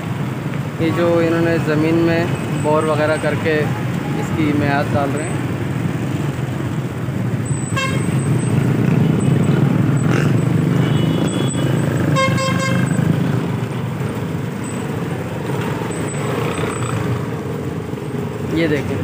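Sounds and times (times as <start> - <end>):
road traffic rumble: 0.0 - 19.0
vehicle horn tooting: 7.7 - 8.2, 10.8 - 13.0.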